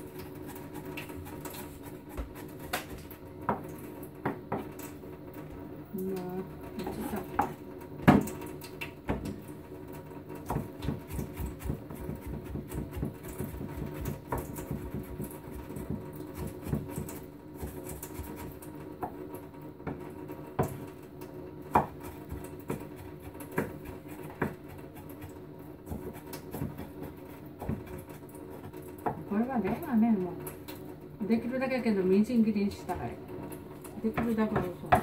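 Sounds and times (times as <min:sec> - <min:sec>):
knife chopping on cutting board: 0:00.2 - 0:03.6, 0:10.5 - 0:19.2, 0:21.7 - 0:29.9, 0:34.1 - 0:35.0.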